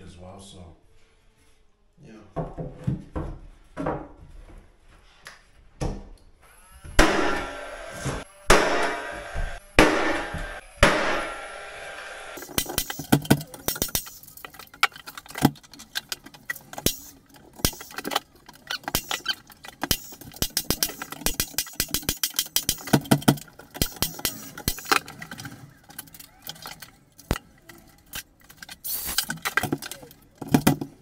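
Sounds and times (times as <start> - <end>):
sharp clicks and knocks of tools: 12.4 - 30.9.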